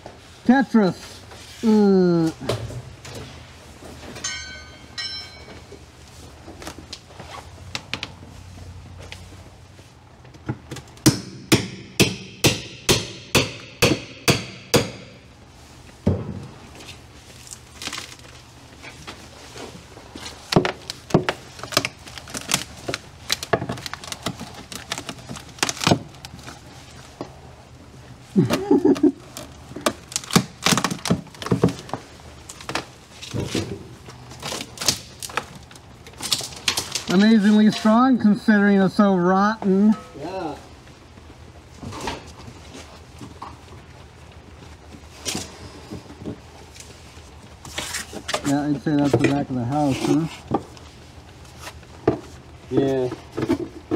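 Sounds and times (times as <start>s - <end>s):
wood cracking and knocking: 20.2s - 27.4s, 28.4s - 37.2s.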